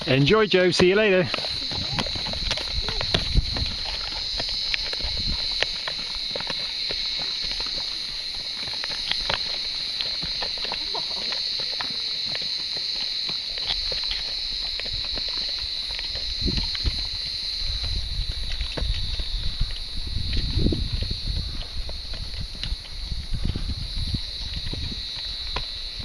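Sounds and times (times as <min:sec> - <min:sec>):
steady high-pitched hiss: 0:00.0 - 0:01.6
horse hooves clopping on dirt: 0:00.0 - 0:26.0.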